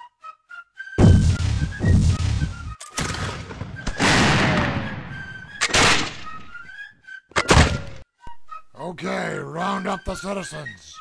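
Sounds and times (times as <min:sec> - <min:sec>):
cannon and gun blasts: 0:01.0 - 0:06.3.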